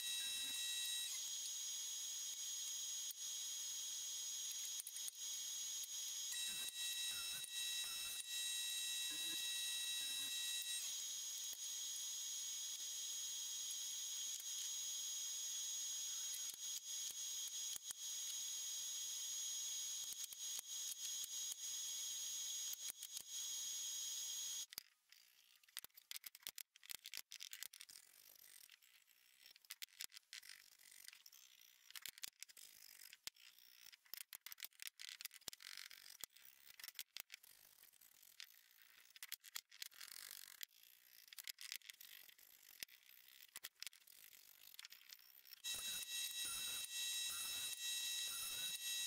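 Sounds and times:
small clicks: 0:24.6 - 0:45.7.

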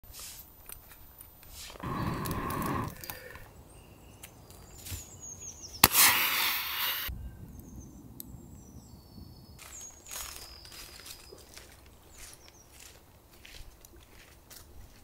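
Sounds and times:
match striking crack: 0:00.2 - 0:03.2, 0:05.8 - 0:07.1
match flaring hiss: 0:01.5 - 0:03.4, 0:05.8 - 0:07.1.

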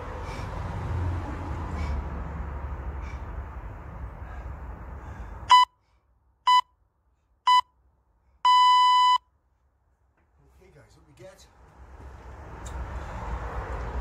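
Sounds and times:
background noise: 0:03.2 - 0:14.0
interval timer beeps: 0:07.5 - 0:07.7, 0:08.5 - 0:09.2.

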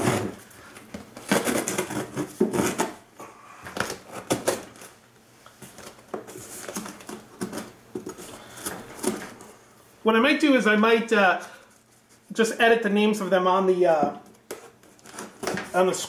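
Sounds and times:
knife slicing packing tape: 0:01.2 - 0:03.0.

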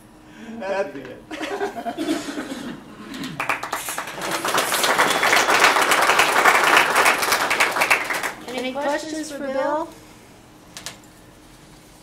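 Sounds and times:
audience applauding: 0:03.1 - 0:08.6
voices: 0:08.1 - 0:10.0.

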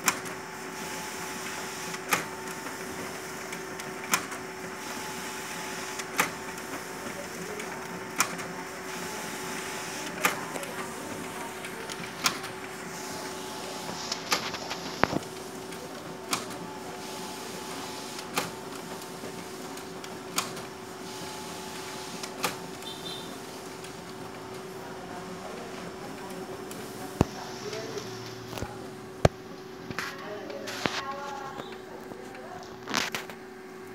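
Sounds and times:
photocopier humming: 0:00.0 - 0:33.9
photocopier clicks: 0:03.5 - 0:04.4, 0:07.4 - 0:08.6, 0:10.0 - 0:12.8, 0:13.8 - 0:16.6.

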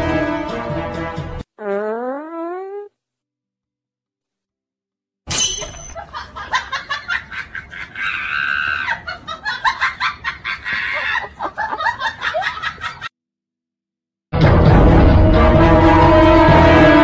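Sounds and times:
people laughing: 0:06.0 - 0:13.1
people screaming: 0:08.0 - 0:09.0.

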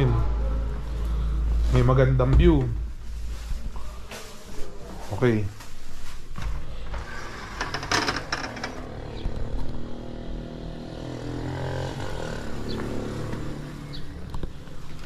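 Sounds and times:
vehicle engine running outside: 0:00.0 - 0:03.4, 0:08.7 - 0:15.0
window sliding open: 0:06.3 - 0:09.9.

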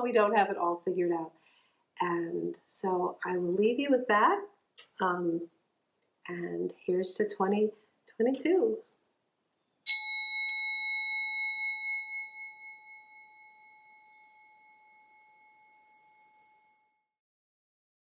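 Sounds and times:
singing bowl ringing: 0:09.9 - 0:17.1.

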